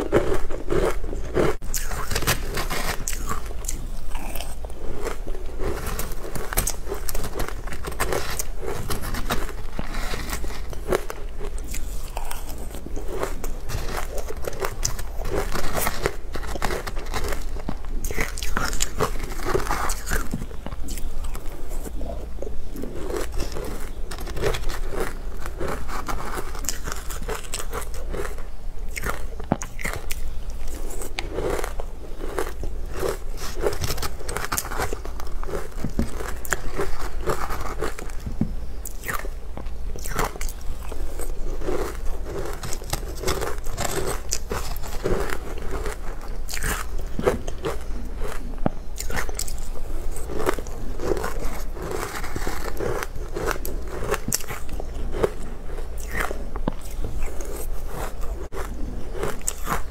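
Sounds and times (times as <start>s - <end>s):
chewing crunchy food: 0.0s - 59.9s.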